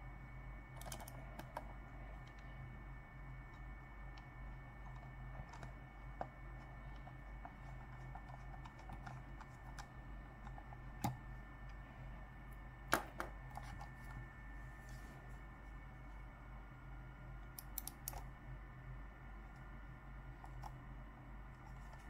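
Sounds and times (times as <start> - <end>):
low electrical hum: 0.0 - 22.0
computer mouse clicks: 0.8 - 2.5, 4.9 - 11.2, 17.4 - 18.3, 20.4 - 20.8.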